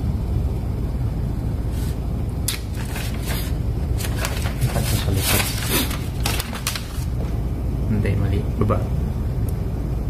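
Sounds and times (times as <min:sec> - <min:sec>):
low hum: 0:00.0 - 0:10.0
rustling and clicking handling noises: 0:02.5 - 0:07.4.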